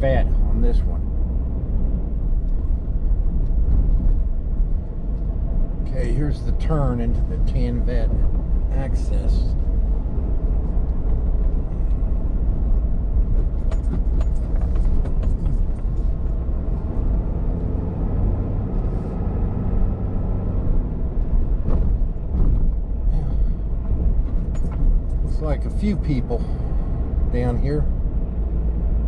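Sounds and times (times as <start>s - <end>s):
vehicle engine and tyres rumbling: 0.0s - 29.0s
gravel clicking under tyres: 9.4s - 17.6s.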